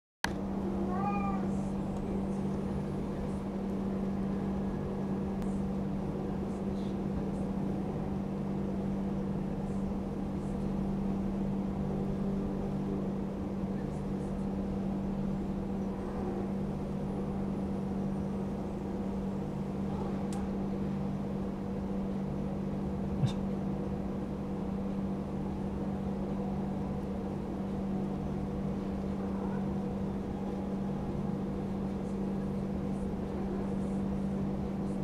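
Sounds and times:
steady low hum: 0:00.3 - 0:35.0
cat meowing: 0:00.8 - 0:01.6.

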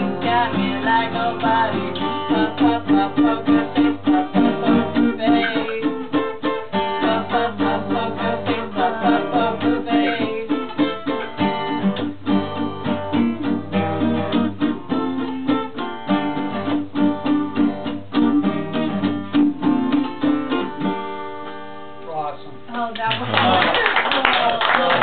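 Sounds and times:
two guitars playing: 0:00.0 - 0:23.2.

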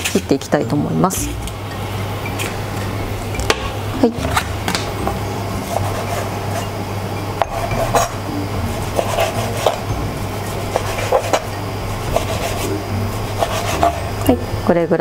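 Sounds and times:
knife chopping on cutting board: 0:09.0 - 0:09.8, 0:10.7 - 0:11.4, 0:12.1 - 0:12.7, 0:13.3 - 0:14.0.

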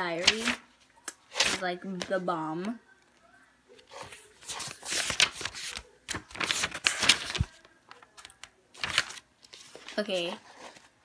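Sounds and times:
paper pages rustling: 0:00.2 - 0:02.2, 0:03.7 - 0:11.0.

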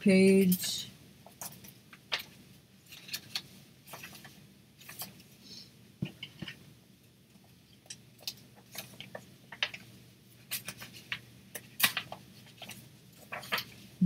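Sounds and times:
paper pages rustling: 0:01.4 - 0:05.3, 0:08.2 - 0:14.0.

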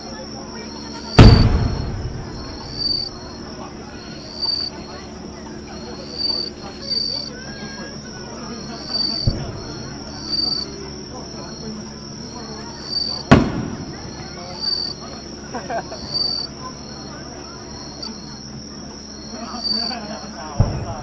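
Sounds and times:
insects chirping: 0:00.0 - 0:21.0
dull firework thump: 0:01.2 - 0:03.2, 0:09.2 - 0:09.9, 0:13.3 - 0:14.1, 0:20.6 - 0:21.0
firework burst rumbling: 0:01.2 - 0:03.6, 0:13.0 - 0:15.0, 0:20.5 - 0:21.0.

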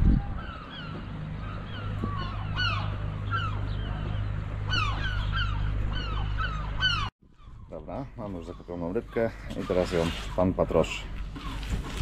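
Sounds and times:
steady low hum: 0:00.0 - 0:07.1
gulls calling: 0:00.0 - 0:12.0.

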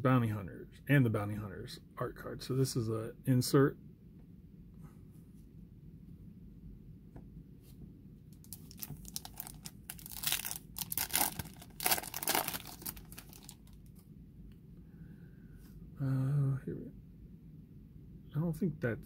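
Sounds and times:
foil wrapper tearing and crinkling: 0:08.4 - 0:13.8.

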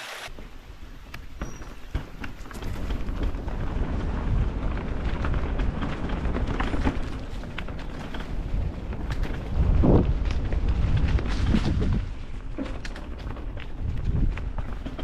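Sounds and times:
bike knocks and rattles: 0:00.3 - 0:15.0
tyres rolling over dirt and stones: 0:00.3 - 0:15.0
wind rumble on microphone: 0:00.3 - 0:15.0.

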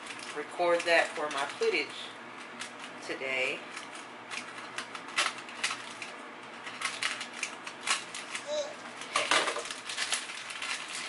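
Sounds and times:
kitchen items clicking: 0:00.0 - 0:03.0, 0:03.6 - 0:11.0
rustling: 0:03.7 - 0:11.0.

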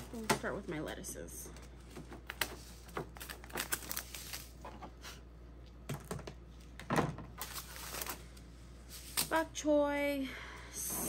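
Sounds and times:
paper seed packets rustling: 0:00.0 - 0:04.8, 0:07.4 - 0:09.4.

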